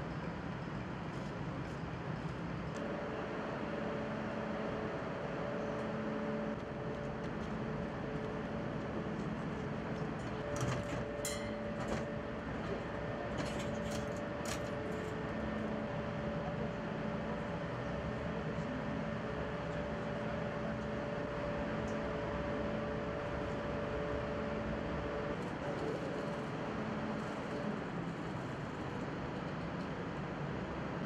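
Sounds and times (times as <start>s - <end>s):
machinery hum: 2.8s - 29.3s.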